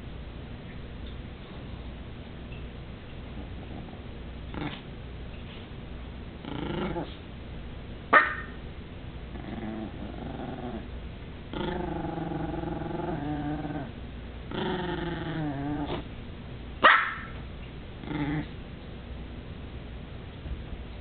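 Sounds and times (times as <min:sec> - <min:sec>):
small dog growling: 0:03.3 - 0:04.9, 0:06.4 - 0:07.3, 0:09.3 - 0:10.9, 0:11.5 - 0:16.1, 0:18.0 - 0:18.6
small dog barking: 0:08.1 - 0:08.6, 0:16.8 - 0:17.4.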